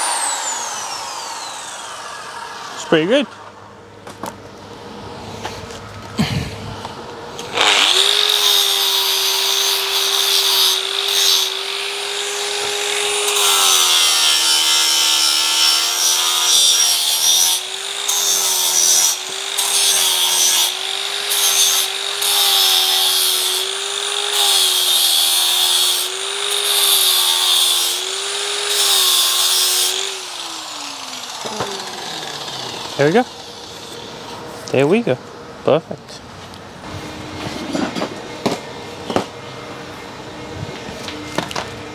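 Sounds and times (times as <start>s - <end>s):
power grinder motor whining: 0.0s - 3.6s, 7.4s - 34.4s.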